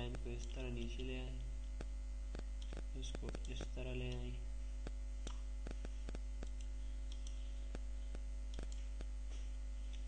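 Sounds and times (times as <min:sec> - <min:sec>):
electrical mains hum: 0:00.0 - 0:10.0
computer mouse clicks: 0:00.4 - 0:07.4, 0:08.5 - 0:09.1.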